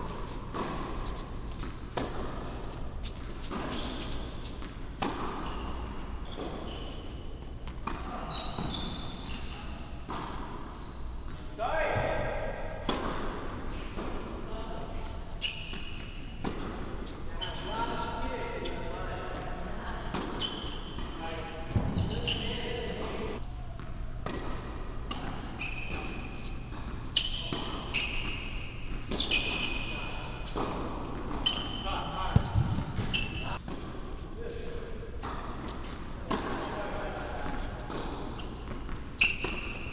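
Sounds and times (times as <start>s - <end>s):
tennis ball bouncing on hard court: 0.0s - 6.7s, 10.0s - 10.6s, 12.8s - 14.3s, 16.4s - 17.2s, 20.1s - 29.8s, 30.4s - 34.0s, 35.2s - 36.6s, 37.4s - 39.9s
shoes squeaking on court: 0.0s - 11.4s, 13.7s - 33.7s, 35.2s - 39.9s.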